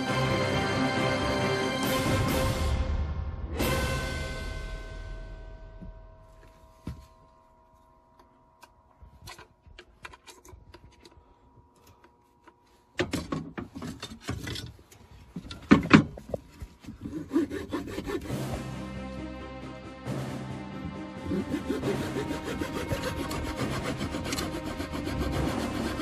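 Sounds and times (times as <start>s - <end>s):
background music: 0.0s - 6.8s, 17.1s - 26.0s
rubbing and scraping on wood: 13.6s - 18.7s, 21.2s - 26.0s.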